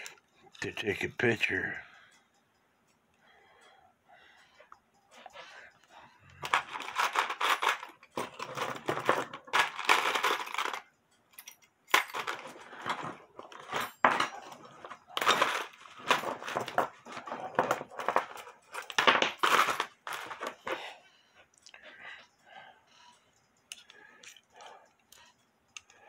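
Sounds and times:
metal parts clinking in plastic tray: 6.4 - 10.8, 11.4 - 20.8.

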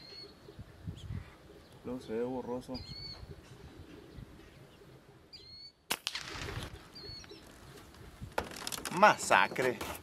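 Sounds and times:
sparrow chirps: 0.0 - 5.9, 6.6 - 8.3
air rifle shot: 5.9 - 6.8.

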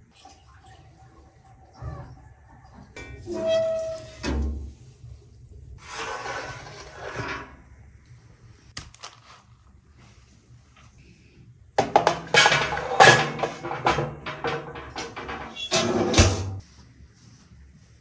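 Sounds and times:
rustling scrape: 5.8 - 7.6
dishes and utensils clattering: 11.8 - 16.6.

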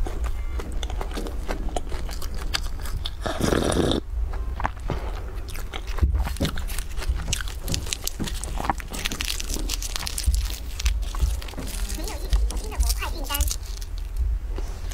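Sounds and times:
person chewing flaky pastry: 0.0 - 14.9
foil cups crinkling: 6.0 - 14.9.

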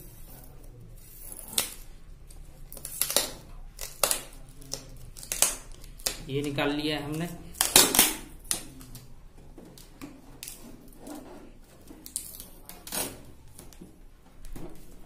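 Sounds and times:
plastic tape crinkling: 0.1 - 15.0.

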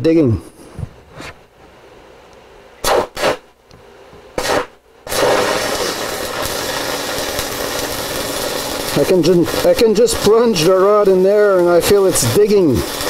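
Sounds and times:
welding arc burning: 2.8 - 3.4, 4.4 - 13.0.

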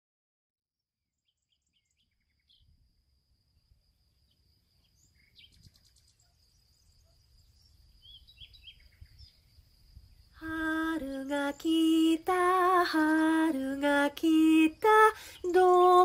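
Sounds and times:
birds chirping: 4.3 - 16.0.

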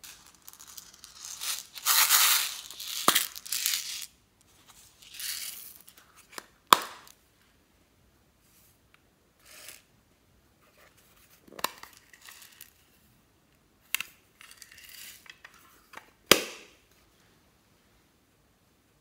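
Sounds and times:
small pieces rattling into glass dish: 0.0 - 4.1.

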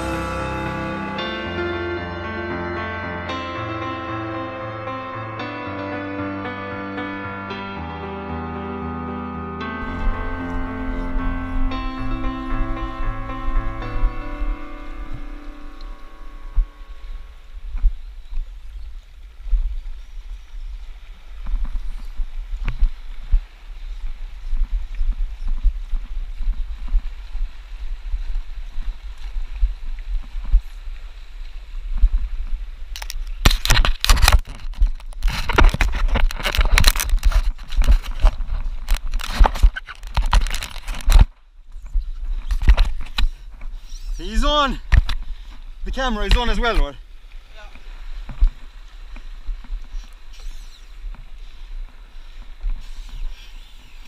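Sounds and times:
low rumble: 0.0 - 5.4, 7.9 - 18.0
wind buffeting microphone: 9.8 - 54.0
handling noise scraping and crackling: 33.0 - 43.7.

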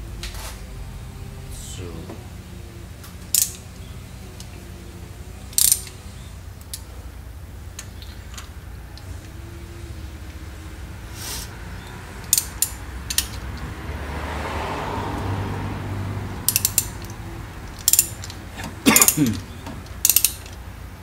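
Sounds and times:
ratchet wrench clicking: 3.0 - 4.7, 5.4 - 6.9, 11.1 - 13.7, 16.4 - 20.7.

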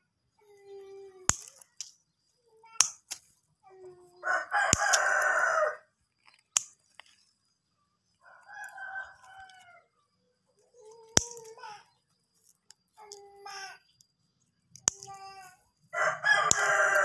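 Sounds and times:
rooster crowing: 4.2 - 5.9, 8.2 - 9.9, 15.9 - 17.0
scissors snipping stems: 4.7 - 5.4, 10.9 - 11.6, 14.8 - 15.2, 16.4 - 17.0.

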